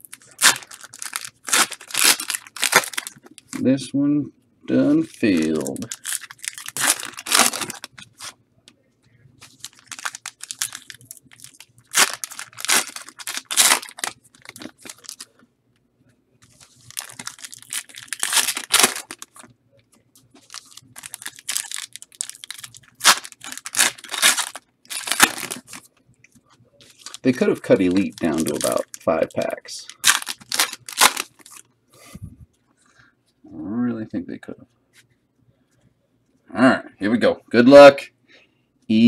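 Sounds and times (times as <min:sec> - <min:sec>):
wrappers tearing and crinkling: 0:00.0 - 0:03.6, 0:05.0 - 0:08.4, 0:09.4 - 0:15.3, 0:16.6 - 0:19.5, 0:20.4 - 0:25.9, 0:26.8 - 0:31.6.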